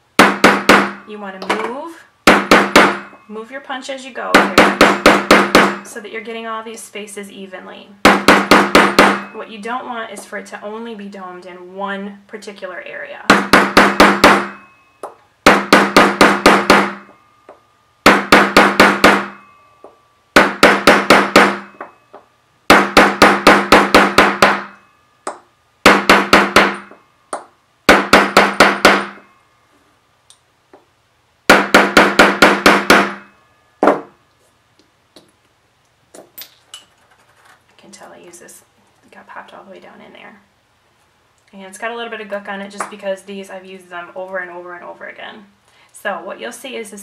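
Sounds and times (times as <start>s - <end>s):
hammer tapping metal punch: 0.2s - 3.2s, 4.3s - 5.9s, 8.1s - 9.4s, 13.3s - 29.3s, 31.5s - 34.2s.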